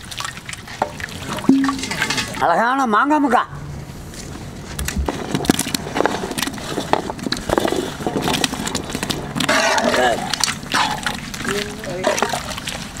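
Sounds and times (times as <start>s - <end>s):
mango pieces clattering off metal plate: 1.5s - 2.4s.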